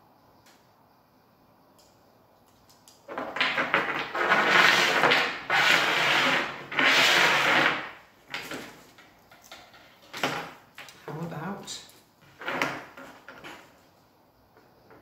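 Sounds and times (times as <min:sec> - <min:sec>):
stones scraping on tabletop: 0:03.1 - 0:08.8.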